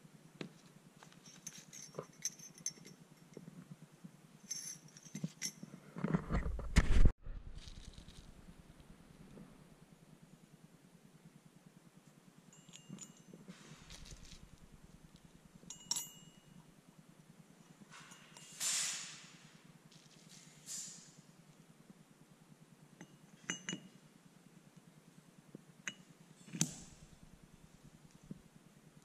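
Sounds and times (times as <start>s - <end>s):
steel gears clinking: 12.6s - 16.6s.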